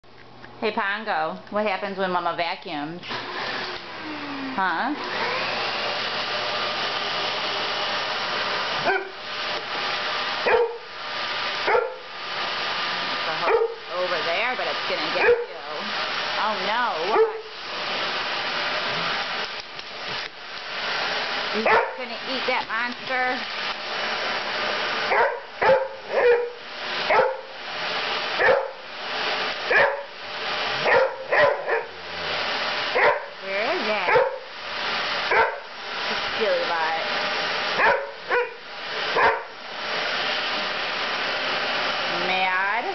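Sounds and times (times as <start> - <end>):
vacuum cleaner running: 0.6 - 42.9
dog barking sharply: 8.9 - 9.2, 10.5 - 10.9, 11.7 - 12.0, 21.6 - 22.0, 25.1 - 27.5, 28.4 - 28.8, 29.7 - 30.1, 30.8 - 32.0, 33.0 - 33.3, 34.1 - 34.4, 35.3 - 35.6, 37.8 - 38.6, 39.2 - 39.5.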